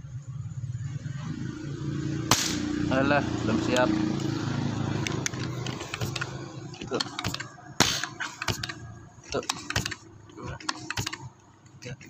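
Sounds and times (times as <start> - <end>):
sharp crack: 2.3 - 2.8, 6.9 - 8.8
air rifle mechanical clicks: 5.0 - 12.0.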